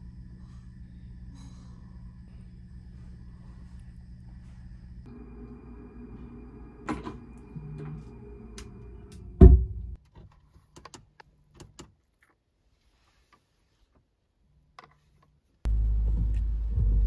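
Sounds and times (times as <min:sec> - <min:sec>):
room hum: 0:00.0 - 0:11.6
wooden cabinet door shutting: 0:09.4 - 0:09.8.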